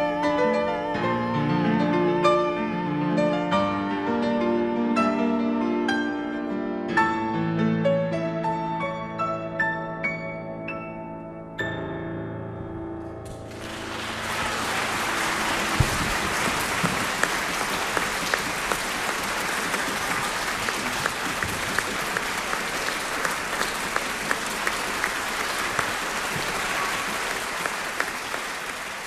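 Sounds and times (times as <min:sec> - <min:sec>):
audience applauding: 0:13.4 - 0:29.0.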